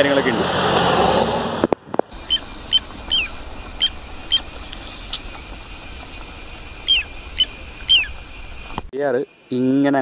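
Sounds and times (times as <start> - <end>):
bird chirping: 1.2 - 10.0
insects droning: 2.1 - 10.0.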